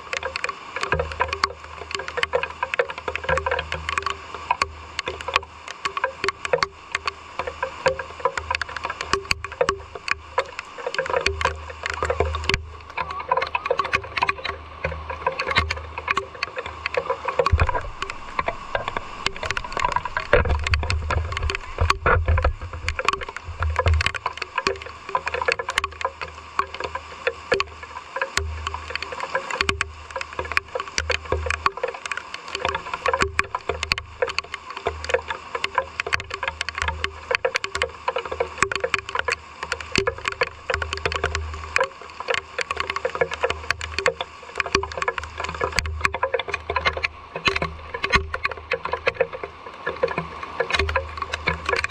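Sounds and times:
raindrops tapping on hard surfaces: 0:00.0 - 0:51.9
low rumbling: 0:17.4 - 0:24.1.

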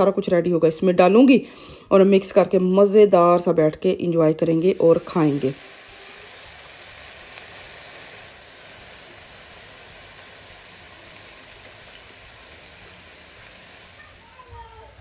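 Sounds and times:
vegetables sizzling in oil: 0:04.3 - 0:15.0.

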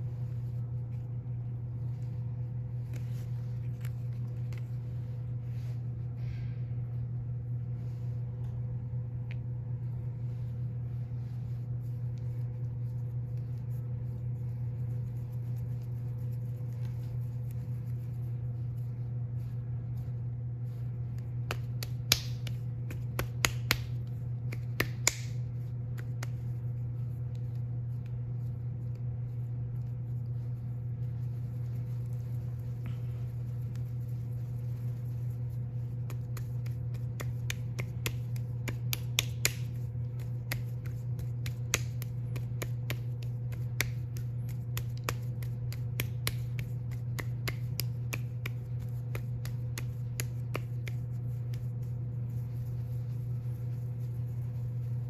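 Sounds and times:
steady low hum: 0:00.0 - 0:55.0
clicks and taps of clay handling: 0:21.1 - 0:26.5, 0:36.0 - 0:51.9.

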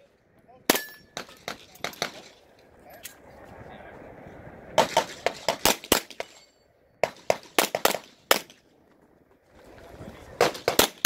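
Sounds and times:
pistol shots: 0:04.8 - 0:06.4, 0:07.0 - 0:08.6, 0:10.4 - 0:11.0.

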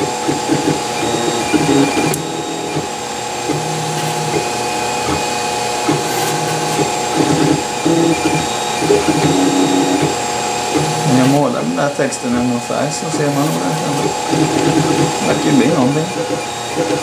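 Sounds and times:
cooling fan hum: 0:00.0 - 0:17.0
stepper motors whining: 0:00.0 - 0:17.0.

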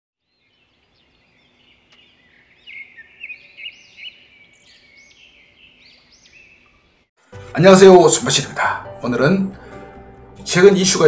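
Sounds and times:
birds singing and chirping: 0:00.2 - 0:07.1.

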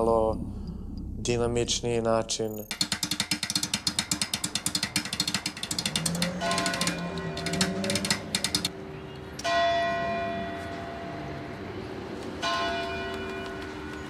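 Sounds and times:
church bell ringing: 0:09.4 - 0:11.5.

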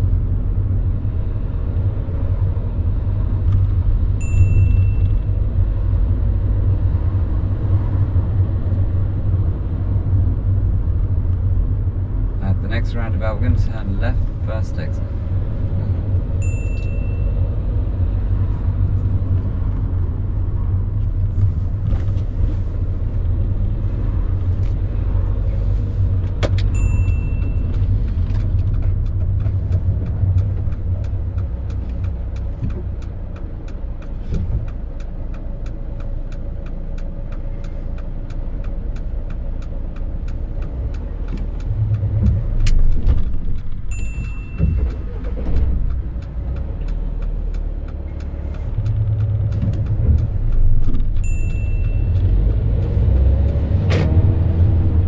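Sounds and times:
car engine and road rumble: 0:00.0 - 0:55.0
short high beeps: 0:04.2 - 0:05.2, 0:16.4 - 0:17.4, 0:43.9 - 0:45.2
regular ticking: 0:26.6 - 0:53.6.

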